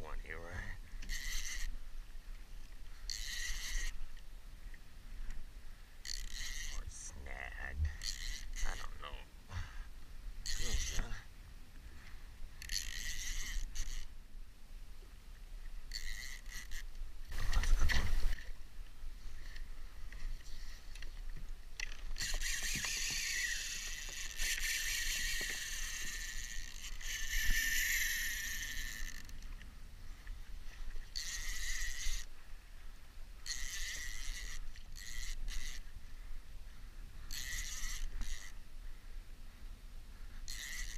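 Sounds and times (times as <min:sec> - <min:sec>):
fishing reel whirring and ratcheting: 0:00.2 - 0:01.8, 0:03.0 - 0:04.3, 0:06.0 - 0:07.2, 0:07.9 - 0:09.0, 0:10.4 - 0:11.2, 0:12.5 - 0:14.2, 0:15.8 - 0:18.5, 0:21.8 - 0:29.6, 0:30.8 - 0:32.3, 0:33.4 - 0:36.0, 0:37.2 - 0:38.6, 0:40.4 - 0:40.9.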